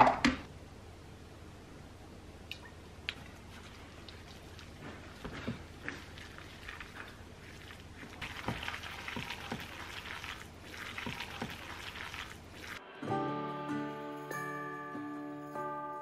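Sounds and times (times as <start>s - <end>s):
wet squishing of meat filling: 3.2s - 12.8s
chiming music: 12.9s - 16.0s.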